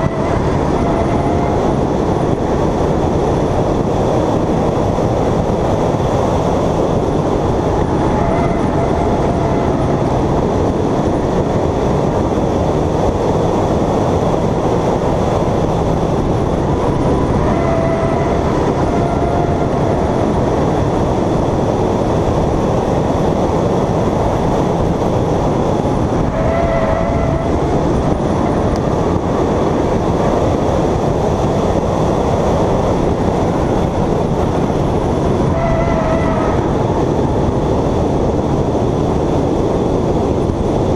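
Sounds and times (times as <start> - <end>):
faint tyre squeal: 0.0 - 1.9, 8.0 - 10.1, 17.2 - 20.2, 26.2 - 27.8, 35.4 - 36.8
race car engine and road noise: 0.0 - 40.9.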